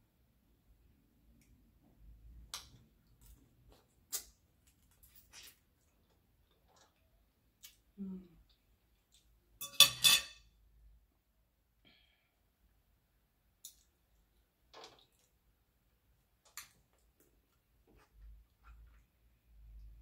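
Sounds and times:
fork clinking on glass bowl: 9.6s - 10.4s.

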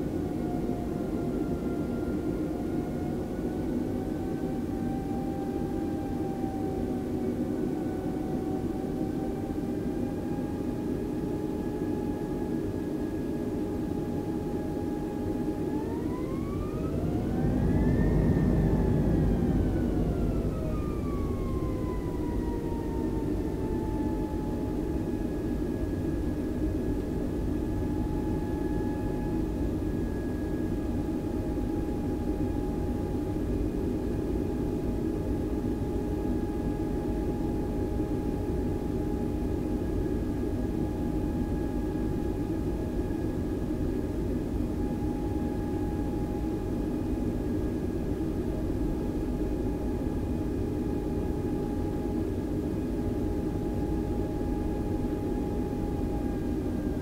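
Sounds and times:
jet engines whining and rumbling: 0.0s - 57.0s.

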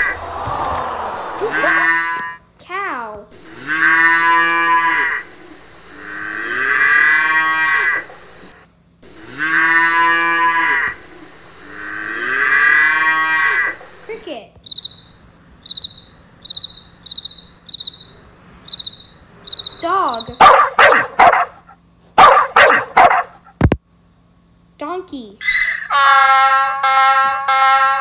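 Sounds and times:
cow mooing: 1.5s - 2.4s, 3.5s - 5.3s, 6.0s - 8.1s, 9.0s - 11.0s, 11.7s - 13.8s
cricket chirping: 3.4s - 21.4s.

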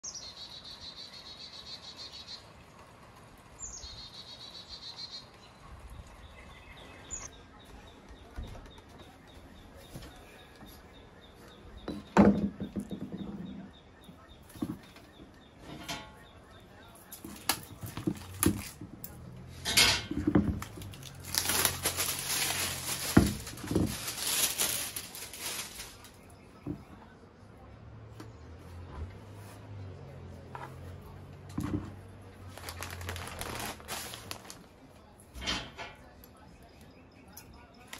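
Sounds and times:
songbird singing with trill: 0.0s - 2.5s, 3.6s - 18.0s
pot knocking on wooden boards: 11.8s - 13.6s
plastic sheet crinkling: 17.2s - 18.9s, 20.1s - 26.3s, 31.6s - 34.9s.

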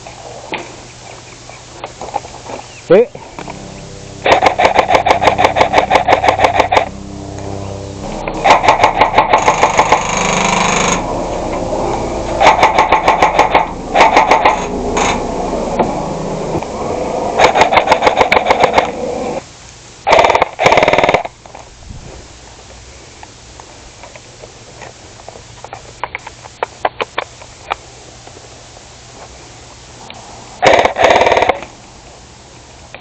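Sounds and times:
automatic gunfire bursts: 20.1s - 21.3s, 30.6s - 31.6s.

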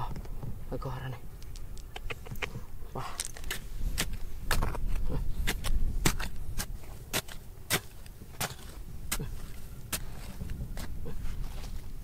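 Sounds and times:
steady low rumble: 0.0s - 12.0s
digging tool striking rock: 3.2s - 11.0s.

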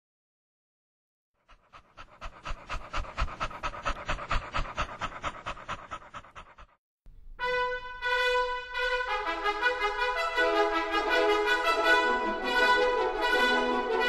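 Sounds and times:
dog panting rapidly: 1.4s - 6.8s.

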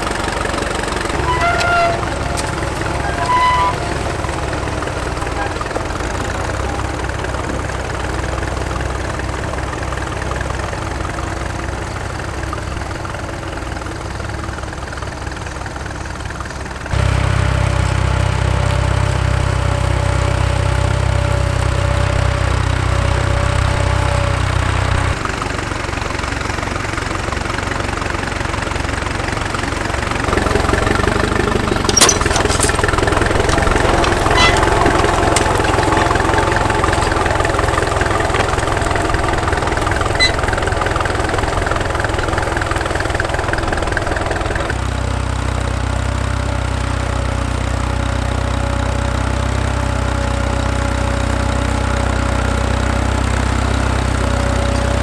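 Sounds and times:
tractor engines running: 0.0s - 55.0s
sharp metal clanks: 31.8s - 37.8s.

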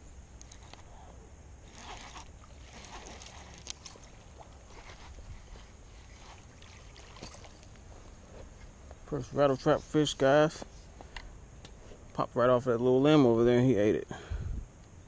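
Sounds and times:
wind rumble on microphone: 4.6s - 6.7s, 14.3s - 14.8s
fish splashing at the surface: 6.1s - 7.6s.

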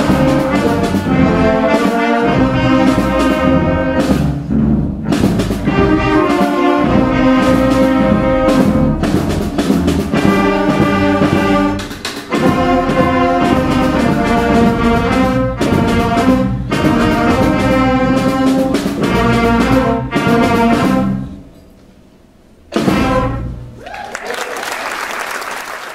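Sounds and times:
concert band playing: 0.0s - 21.4s, 22.7s - 23.7s
audience applause: 23.8s - 25.9s.

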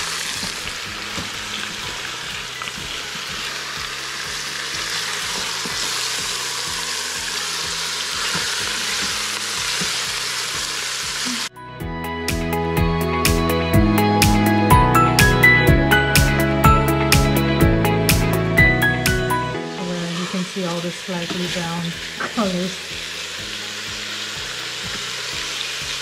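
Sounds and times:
meat sizzling in hot oil: 0.0s - 11.5s, 19.1s - 26.0s
music with a beat: 11.6s - 19.6s.

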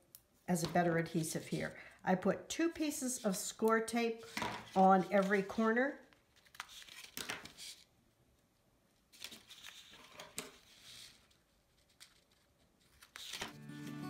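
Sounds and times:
music: 13.5s - 14.0s.

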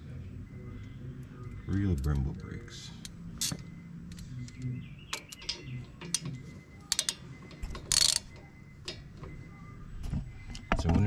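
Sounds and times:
wrench clicking and clinking on bolts: 6.9s - 7.2s, 7.8s - 8.3s.

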